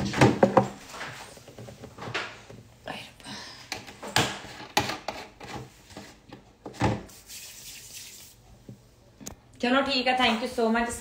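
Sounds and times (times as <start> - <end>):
knocks of kitchen items handled: 0.0 - 0.8.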